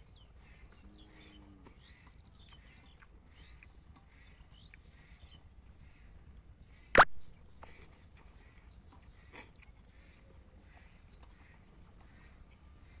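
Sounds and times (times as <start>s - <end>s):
small bird chirping: 7.6s - 8.2s.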